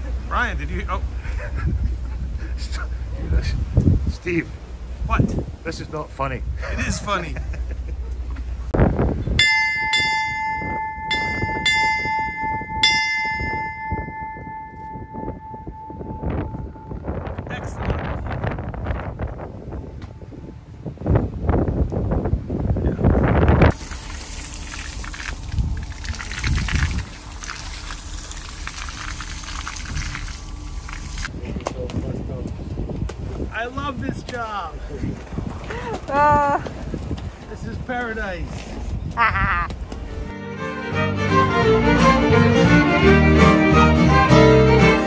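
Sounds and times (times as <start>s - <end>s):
wind buffeting microphone: 0.7s - 7.4s, 8.2s - 40.3s
ship's bell clanging: 9.3s - 17.5s
sea water rushing and splashing: 23.7s - 31.3s.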